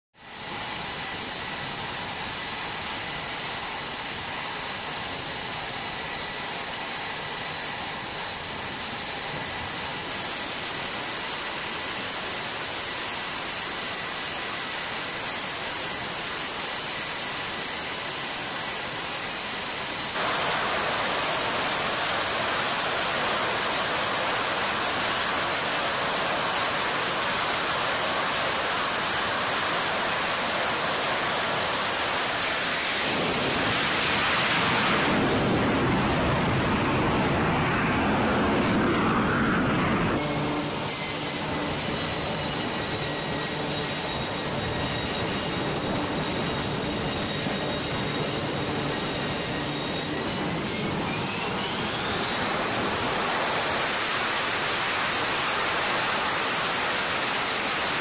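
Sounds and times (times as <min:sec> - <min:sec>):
high steady jet whine: 0:00.2 - 0:58.0
jet engines rushing: 0:00.2 - 0:58.0.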